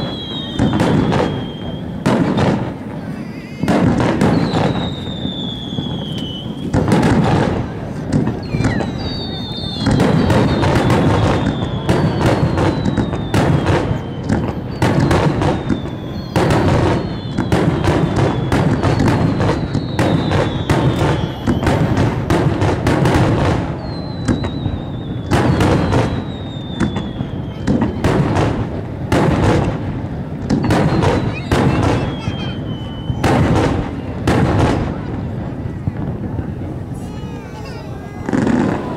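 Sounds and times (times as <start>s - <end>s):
firework whistles sliding down: 0.0s - 7.3s, 8.3s - 28.4s, 30.4s - 34.0s
firework shells bursting: 0.0s - 35.2s.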